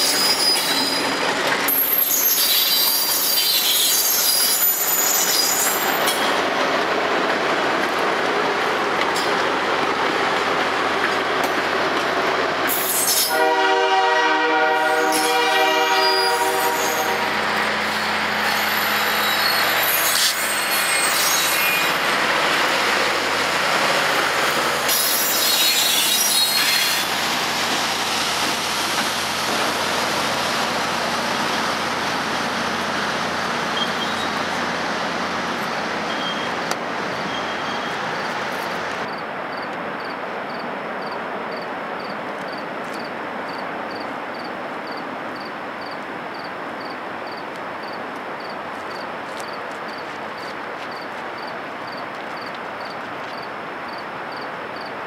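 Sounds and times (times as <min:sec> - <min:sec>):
high wheel squeal: 0:00.0 - 0:06.3, 0:15.0 - 0:22.2, 0:24.9 - 0:27.1, 0:33.7 - 0:34.5, 0:36.0 - 0:36.6, 0:37.2 - 0:38.0
passenger train rolling past: 0:00.0 - 0:55.0.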